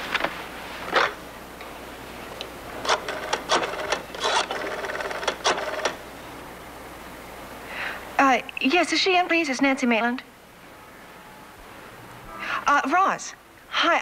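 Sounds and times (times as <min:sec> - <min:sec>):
rotary phone dial whirring clicks: 0:02.8 - 0:06.0.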